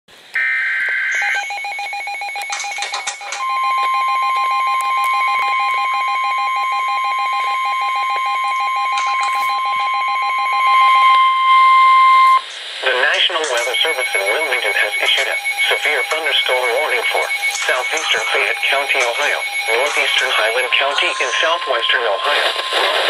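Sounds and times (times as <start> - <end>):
steady warning alarm tone: 0.4 - 23.0
warbling data tones: 1.0 - 23.0
rapid alert beeping: 13.0 - 22.6.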